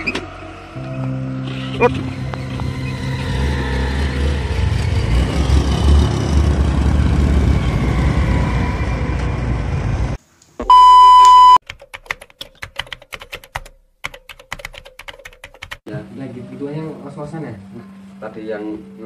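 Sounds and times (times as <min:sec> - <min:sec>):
steady beep: 0:10.6 - 0:11.6
keyboard typing clicks: 0:11.2 - 0:15.8.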